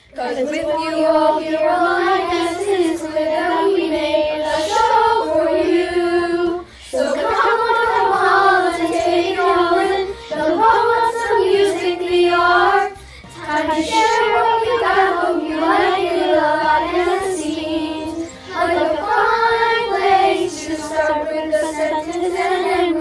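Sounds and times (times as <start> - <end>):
children singing together: 0.0 - 23.0.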